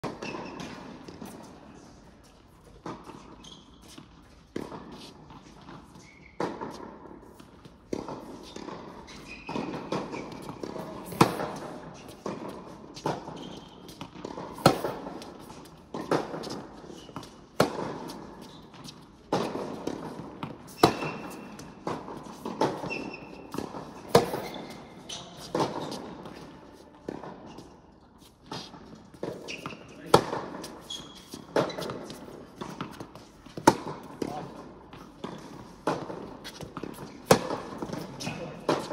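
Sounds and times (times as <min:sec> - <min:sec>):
tennis balls bouncing on court: 0:00.0 - 0:38.9
tennis balls hit by racket: 0:00.0 - 0:38.9.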